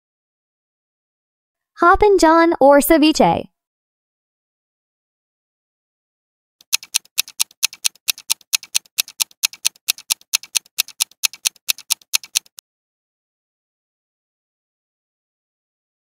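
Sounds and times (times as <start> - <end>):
rapid clock ticking: 6.6 - 12.6.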